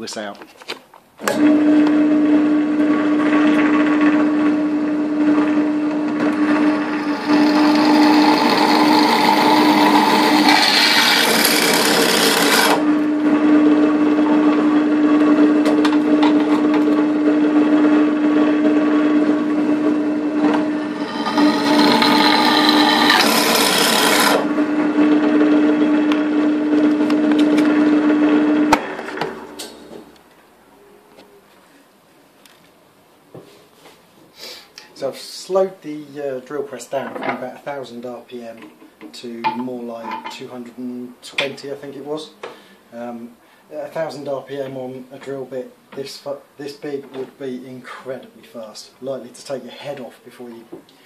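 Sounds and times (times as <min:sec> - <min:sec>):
pillar drill humming: 0:03.6 - 0:28.9
drill bit cutting metal: 0:03.7 - 0:12.9, 0:19.4 - 0:24.5.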